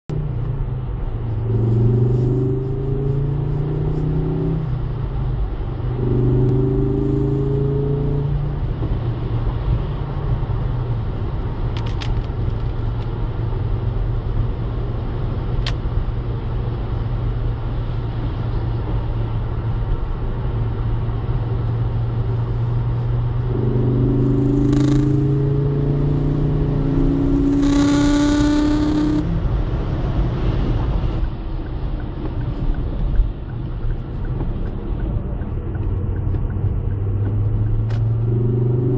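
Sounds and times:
car engine revving in cabin: 0.1s - 13.6s, 17.8s - 38.9s
tyre noise on wet road: 8.3s - 38.3s.

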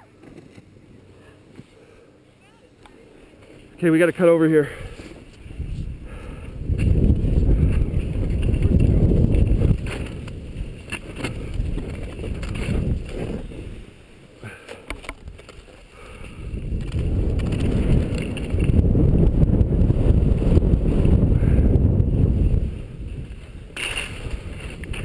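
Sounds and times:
skis scraping over snow: 3.1s - 14.6s, 15.2s - 25.0s
wind buffeting microphone: 4.8s - 13.9s, 16.0s - 25.0s.

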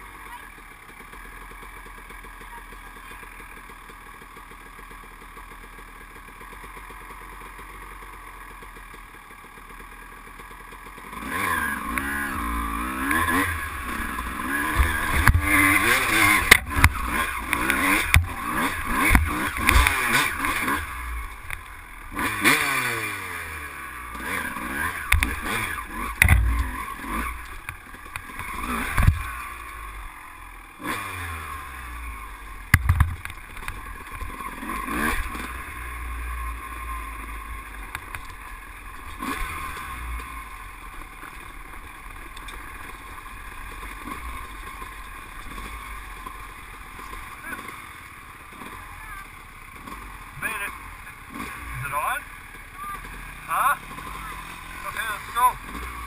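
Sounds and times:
atv engine idling and revving: 0.0s - 56.0s
knocks and clatter over rocks: 13.9s - 20.6s, 26.2s - 26.8s, 27.4s - 29.3s, 32.7s - 34.4s.

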